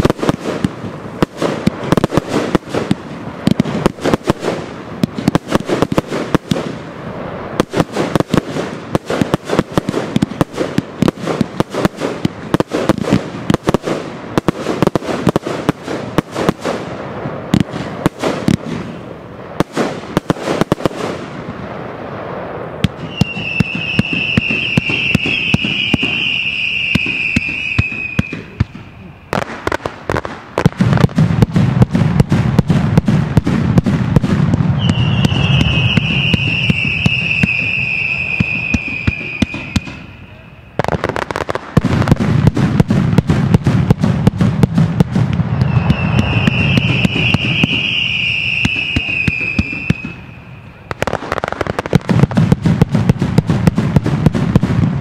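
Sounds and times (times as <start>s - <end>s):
fireworks cracking and banging: 0.0s - 55.0s
low firework booms: 0.0s - 55.0s
firework whistle: 21.8s - 29.7s, 34.2s - 41.5s, 45.1s - 51.7s.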